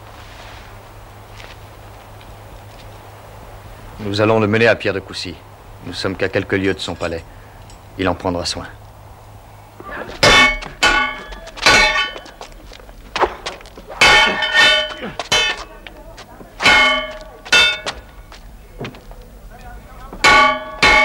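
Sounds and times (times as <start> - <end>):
loud metallic clangs: 10.2 - 12.4, 13.2 - 15.7, 16.6 - 18.1, 20.2 - 21.0.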